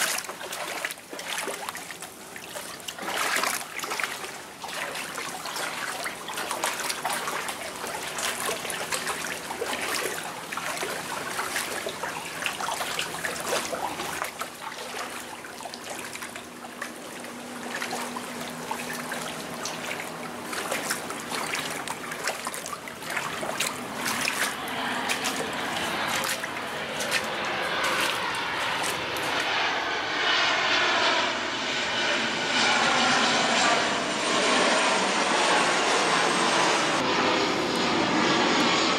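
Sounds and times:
feet wading through water: 0.0 - 38.9.

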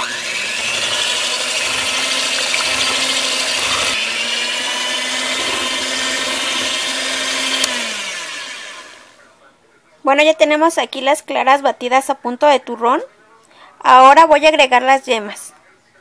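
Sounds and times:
electric hand mixer whirring: 0.0 - 9.2.

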